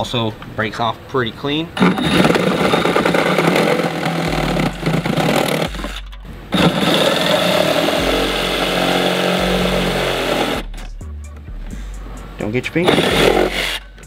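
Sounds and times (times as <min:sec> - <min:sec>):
reciprocating saw cutting metal: 0:01.8 - 0:10.9, 0:12.8 - 0:14.0.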